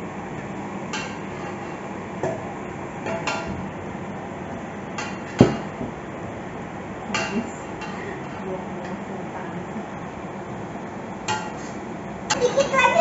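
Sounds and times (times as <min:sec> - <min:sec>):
metal spatula scraping a wok: 0:11.3 - 0:11.8.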